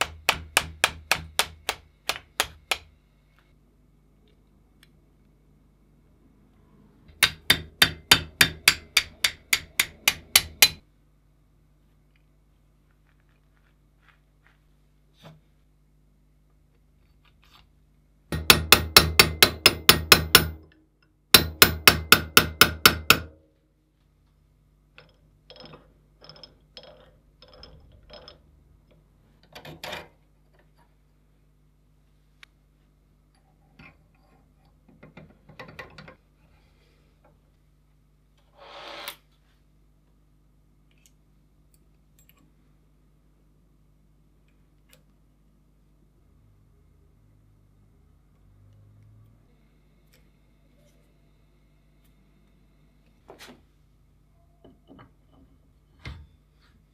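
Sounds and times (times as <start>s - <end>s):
rapid hammer taps: 0.0s - 2.9s.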